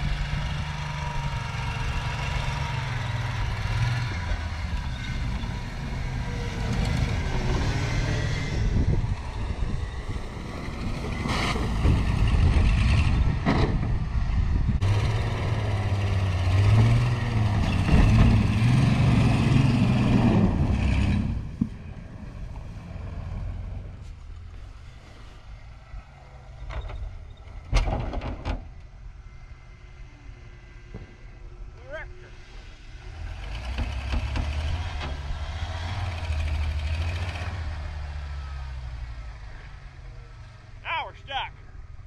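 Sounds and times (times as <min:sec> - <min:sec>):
tyres spinning in snow: 0:00.0 - 0:27.7, 0:32.9 - 0:40.9
wind rumbling on microphone: 0:03.4 - 0:28.5
pickup engine revving: 0:14.8 - 0:21.7, 0:32.3 - 0:40.3.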